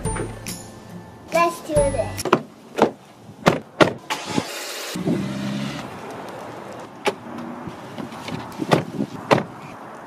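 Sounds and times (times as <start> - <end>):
car engine starting and running: 3.7 - 8.6.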